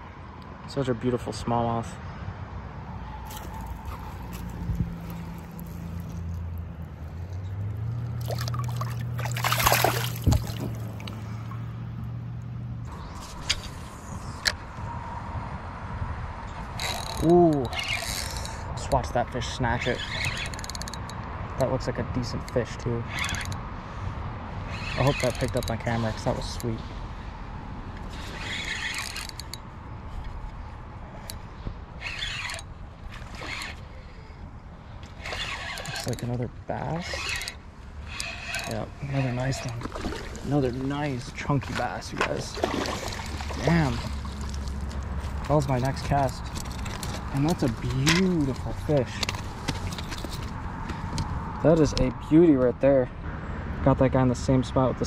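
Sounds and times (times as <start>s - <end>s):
river water splashing: 3.2s - 11.8s, 37.0s - 48.9s
fishing reel cranking: 3.3s - 6.6s, 16.8s - 18.6s, 19.8s - 21.2s, 22.5s - 23.6s, 24.7s - 26.7s, 28.0s - 29.6s, 32.0s - 34.3s, 35.1s - 39.8s.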